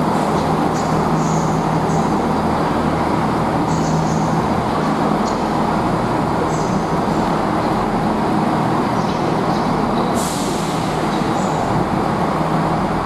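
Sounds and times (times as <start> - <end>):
diesel train engine rumbling: 0.0 - 13.0
compressed air hiss: 10.2 - 11.1.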